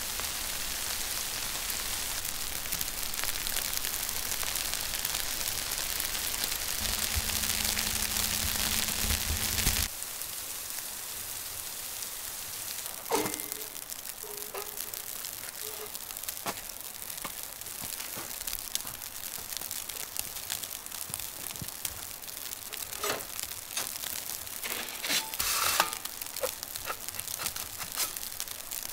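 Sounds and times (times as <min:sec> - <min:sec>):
falling snow pattering: 0:00.0 - 0:28.9
low hum: 0:06.8 - 0:09.9.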